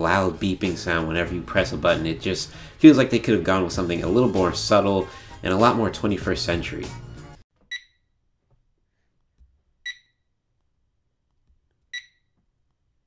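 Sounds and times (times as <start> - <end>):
alarm clock speaker beeping: 7.7 - 8.0, 9.8 - 10.2, 11.9 - 12.2.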